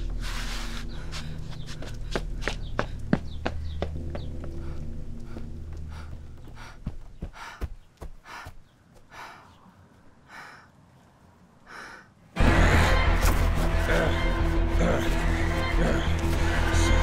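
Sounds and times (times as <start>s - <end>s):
woman panting: 4.6s - 10.8s, 11.7s - 12.2s
low drone: 11.6s - 17.0s.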